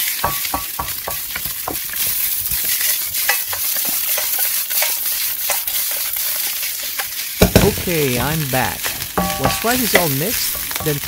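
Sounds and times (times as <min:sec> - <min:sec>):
rice sizzling in a wok: 0:00.0 - 0:11.0
wooden spatula scraping pan: 0:00.1 - 0:11.0.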